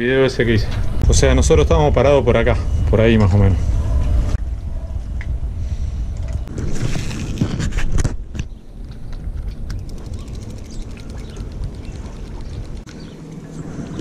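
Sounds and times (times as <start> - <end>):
wind rumbling on microphone: 0.6 - 14.0
spinning reel clicking: 9.7 - 13.2.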